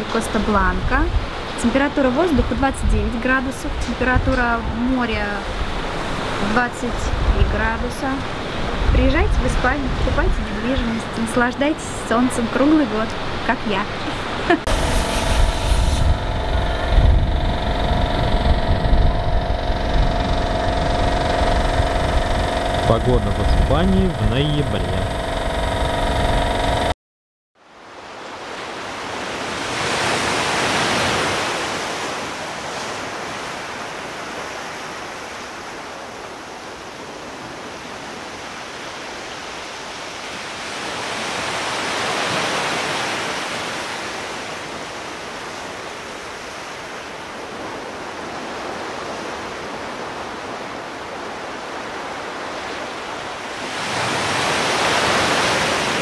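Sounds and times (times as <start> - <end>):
waves washing on sandy beach: 27.9 - 56.0.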